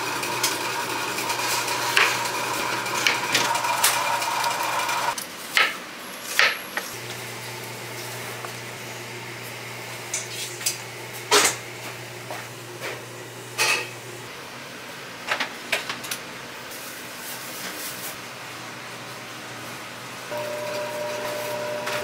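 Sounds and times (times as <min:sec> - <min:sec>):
kitchen equipment humming: 0:00.0 - 0:05.2, 0:06.4 - 0:22.0
utensils and dishes clinking: 0:13.6 - 0:14.0.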